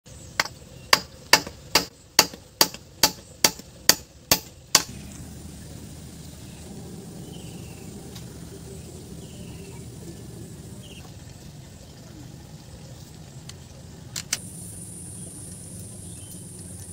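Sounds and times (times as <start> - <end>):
hammer striking nail into wood: 0.4 - 4.9.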